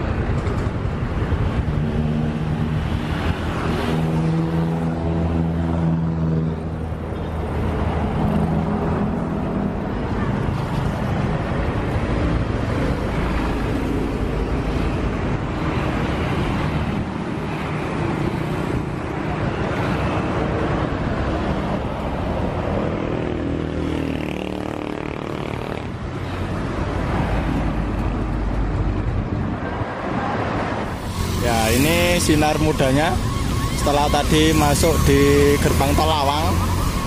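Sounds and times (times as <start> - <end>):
road traffic: 0.0 - 37.0
heavy engine droning: 30.9 - 37.0.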